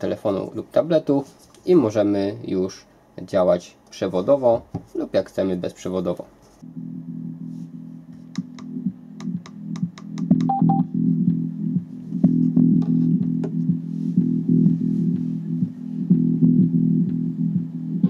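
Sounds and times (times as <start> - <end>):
music with bass and guitar: 6.6 - 18.0.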